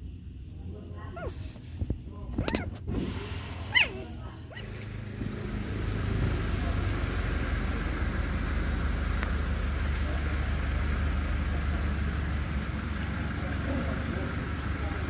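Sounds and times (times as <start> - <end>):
low engine rumble: 0.0 - 15.0
faint high-pitched squeak: 2.4 - 2.8.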